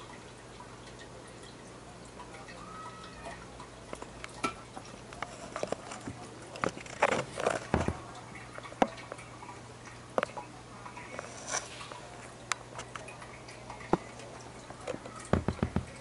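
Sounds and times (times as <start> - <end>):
underwater clicks and knocks: 3.9 - 9.3, 13.8 - 16.0.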